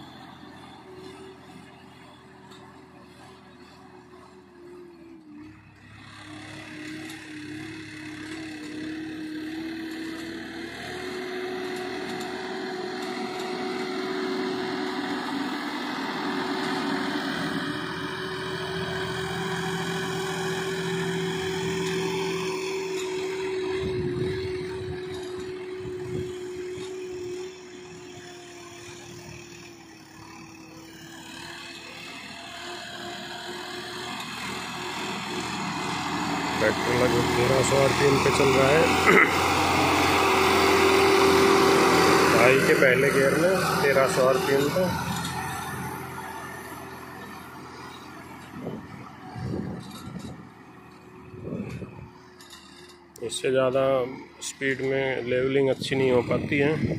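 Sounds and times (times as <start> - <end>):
tractor engine running: 0.0 - 56.9.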